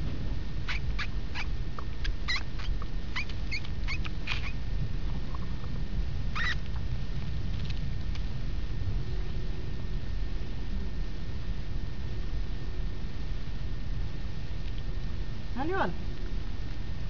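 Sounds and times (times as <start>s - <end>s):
mouse squeaking: 0.7s - 4.6s, 6.3s - 6.8s.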